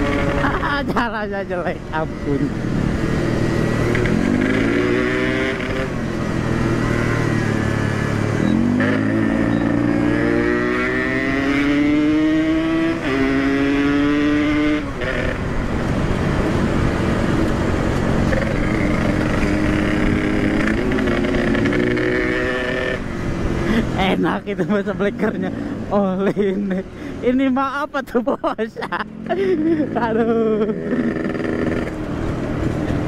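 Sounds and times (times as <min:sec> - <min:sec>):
motorcycle engine accelerating: 0:00.0 - 0:01.1, 0:01.8 - 0:25.9, 0:29.0 - 0:33.0.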